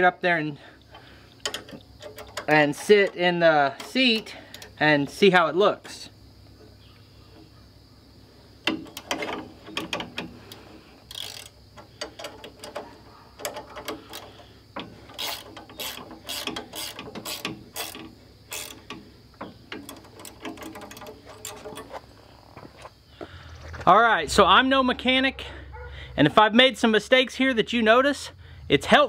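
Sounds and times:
ratchet wrench clicking: 0:08.6 - 0:22.0.

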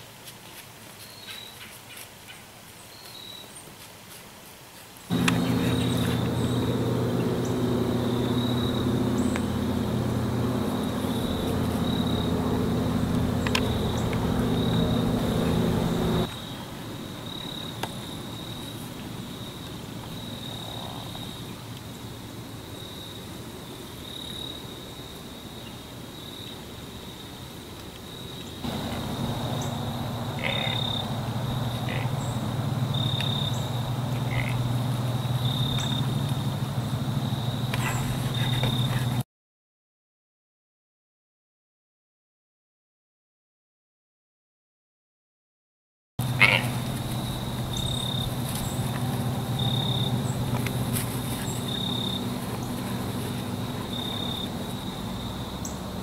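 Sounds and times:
low steady hum: 0:05.1 - 0:16.3, 0:28.6 - 0:39.2, 0:46.2 - 0:55.5
insects trilling: 0:05.1 - 0:39.2, 0:46.2 - 0:56.0.

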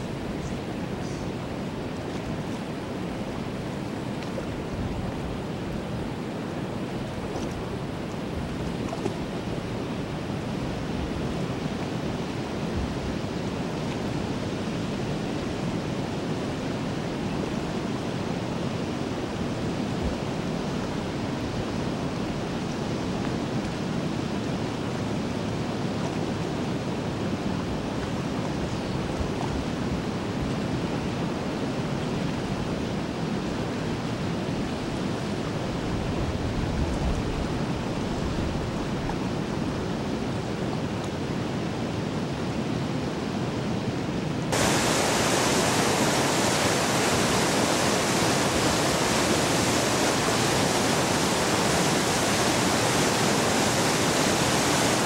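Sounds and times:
whitewater pouring through dam: 0:37.4 - 0:55.0
low rushing noise: 0:44.5 - 0:55.0.

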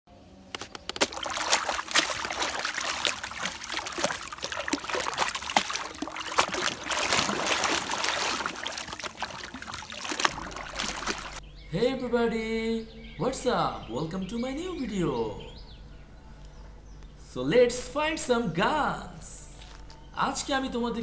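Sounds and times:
water splashing and sloshing: 0:00.6 - 0:11.4.

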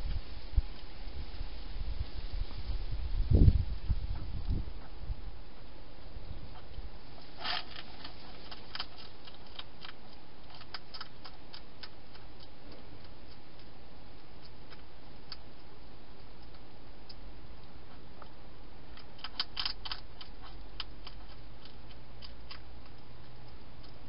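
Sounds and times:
hedgehog crunching dry food: 0:06.5 - 0:24.0.

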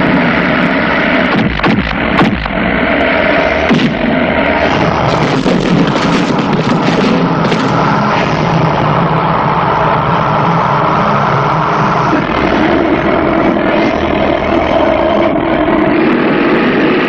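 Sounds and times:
loud steady drone: 0:00.0 - 0:17.0
impact and crash effects: 0:01.2 - 0:08.5.

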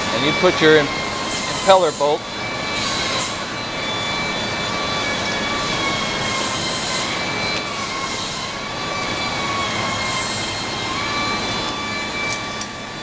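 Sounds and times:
faint high whining tones: 0:00.0 - 0:13.0
workshop machinery noise: 0:00.0 - 0:13.0.

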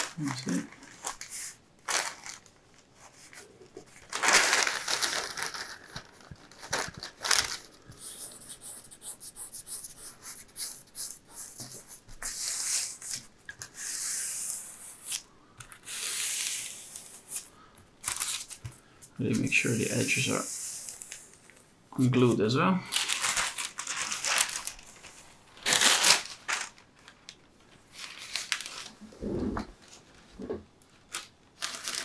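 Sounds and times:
paper rustling and crinkling: 0:00.0 - 0:08.8, 0:15.1 - 0:21.6, 0:22.9 - 0:30.3, 0:30.9 - 0:32.0.

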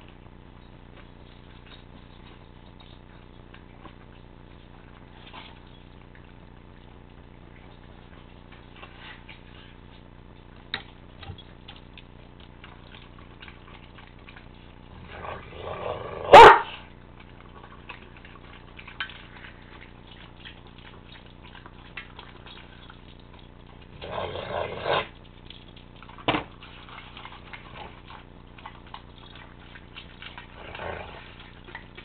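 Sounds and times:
clicks of eating: 0:00.0 - 0:14.8, 0:17.2 - 0:24.0, 0:25.0 - 0:32.0
animals scuffling: 0:00.0 - 0:15.8.

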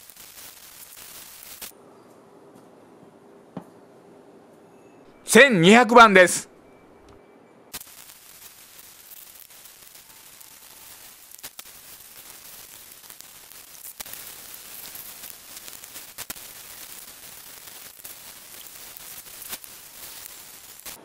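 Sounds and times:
wet sanding hiss: 0:00.0 - 0:01.7, 0:07.8 - 0:21.0.

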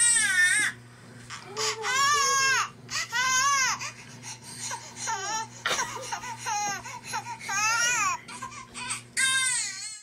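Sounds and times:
newborn baby crying: 0:01.5 - 0:04.0, 0:04.7 - 0:10.0.

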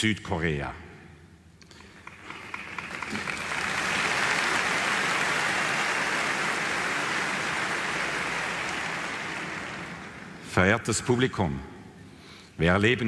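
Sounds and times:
large audience applauding: 0:01.8 - 0:10.5.

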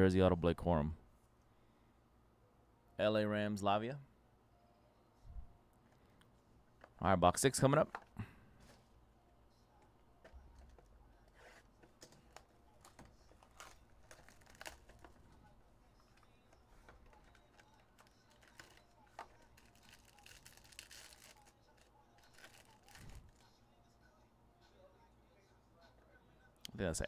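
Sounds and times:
wrapper crinkling and tearing: 0:12.3 - 0:15.2, 0:17.0 - 0:23.5.

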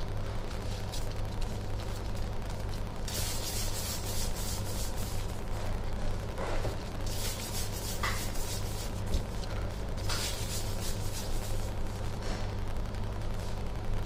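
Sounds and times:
steady low hum: 0:00.0 - 0:14.0
hands rubbing dough on counter: 0:03.1 - 0:05.4, 0:07.1 - 0:11.8.

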